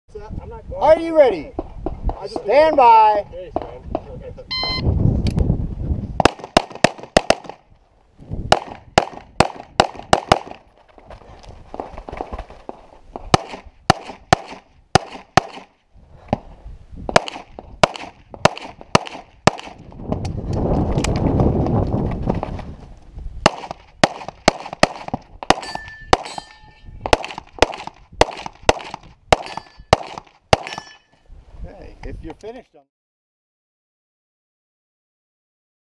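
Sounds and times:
pistol shots: 6.2s - 7.6s, 8.5s - 10.6s, 13.3s - 15.7s, 17.1s - 19.8s, 23.4s - 31.0s.

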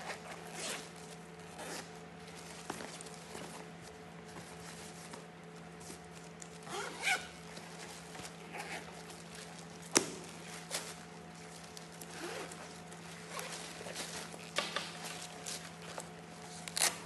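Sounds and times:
zipper being pulled: 0.0s - 0.9s, 1.5s - 1.9s, 6.6s - 7.4s, 8.3s - 9.0s, 12.0s - 14.5s.

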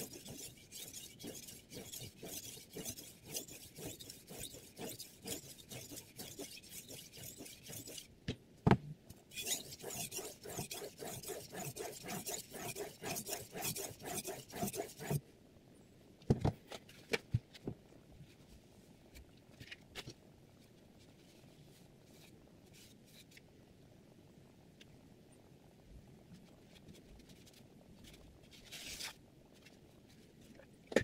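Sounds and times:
knife scraping on whetstone: 0.0s - 8.1s, 9.3s - 15.2s.

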